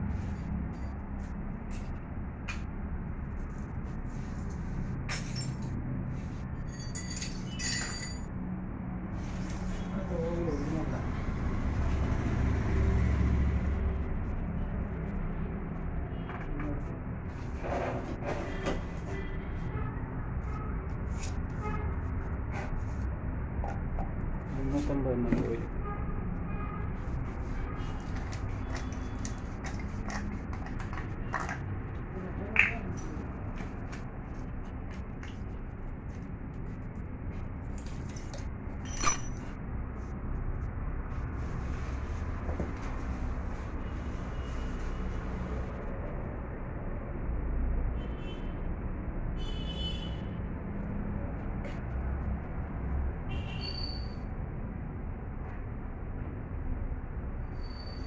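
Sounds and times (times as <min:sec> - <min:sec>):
metal clinking: 0:06.7 - 0:08.3, 0:38.8 - 0:39.6.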